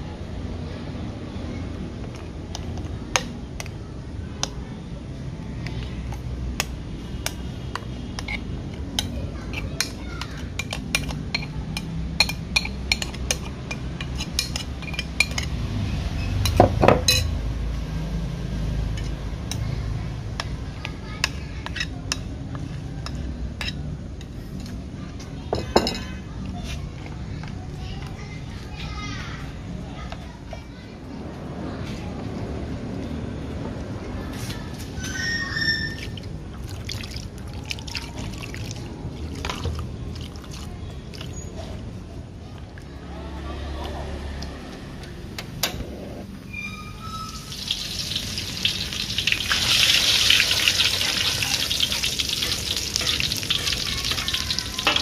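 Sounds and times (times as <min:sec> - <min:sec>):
liquid trickling and splashing: 0:36.0 - 0:41.6, 0:47.2 - 0:55.0.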